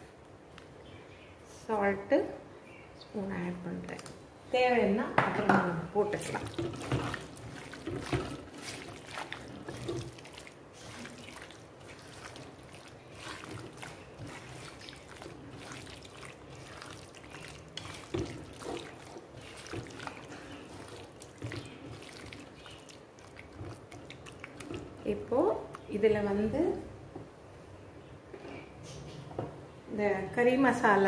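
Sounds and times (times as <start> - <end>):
hand kneading wet raw chicken: 6.1 - 26.3.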